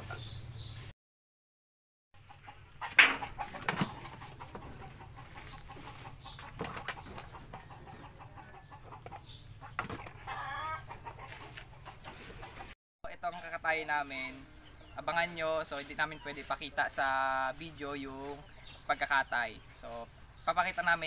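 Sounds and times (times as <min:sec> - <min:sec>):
chickens clucking: 0:00.0 - 0:00.8, 0:02.2 - 0:21.0
knocks and rattles on wire hutches: 0:02.4 - 0:12.7.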